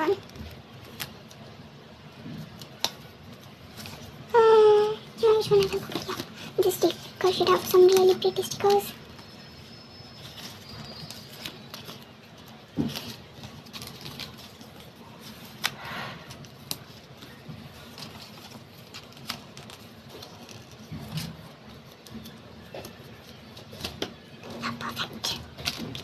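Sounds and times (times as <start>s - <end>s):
paper and plastic rustling: 0.0s - 26.0s
stickers peeling: 2.3s - 9.5s, 10.1s - 26.0s.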